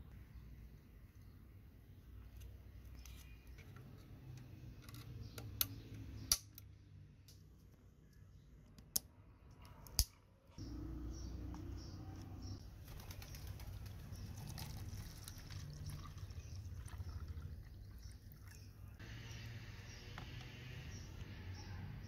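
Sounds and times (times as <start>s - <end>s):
liquid pouring into plastic cup: 13.2s - 18.8s.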